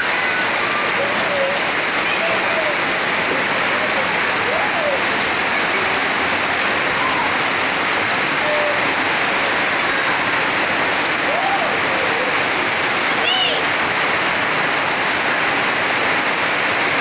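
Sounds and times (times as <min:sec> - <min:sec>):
faint children's voices: 0:00.0 - 0:07.5, 0:13.0 - 0:13.8
heavy rain pouring: 0:00.0 - 0:17.0.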